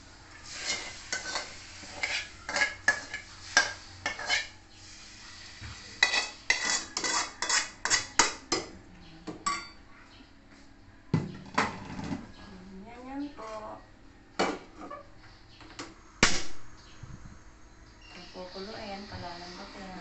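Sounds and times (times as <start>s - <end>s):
metal utensil scraping a pan: 0.4s - 4.6s, 5.9s - 8.6s.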